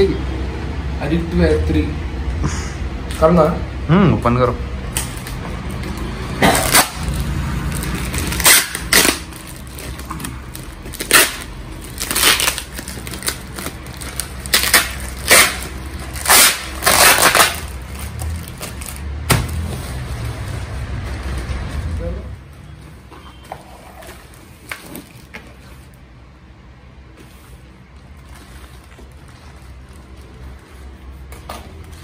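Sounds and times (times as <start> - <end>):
plastic mailer ripping and crinkling: 4.9 - 22.0.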